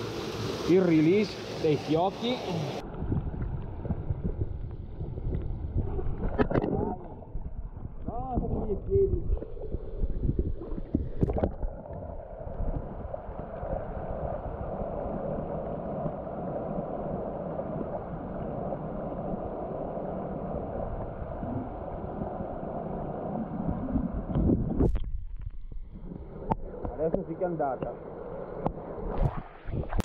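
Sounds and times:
muffled underwater water rush: 0.0 - 30.0
knocks and splashes: 2.9 - 11.8.

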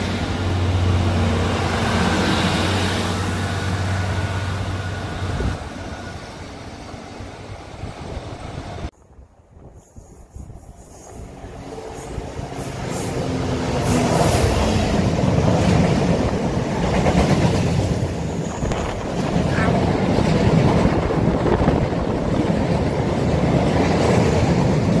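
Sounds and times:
diesel locomotive passing: 0.0 - 25.0
train wheels rumbling on rails: 0.0 - 25.0.

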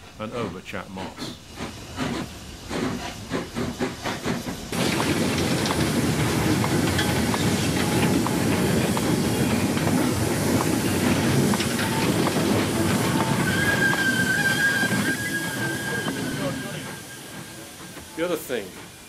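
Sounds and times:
rail clicks and clanks: 0.0 - 19.0
steam locomotive exhaust beats: 0.0 - 19.0
train wagons rumbling: 0.0 - 19.0.

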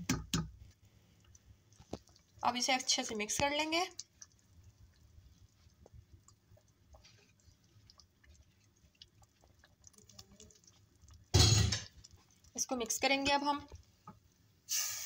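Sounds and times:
food crackling in a pot: 0.0 - 15.0.

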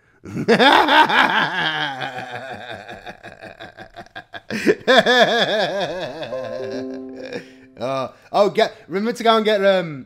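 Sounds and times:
man laughing: 0.5 - 6.8.

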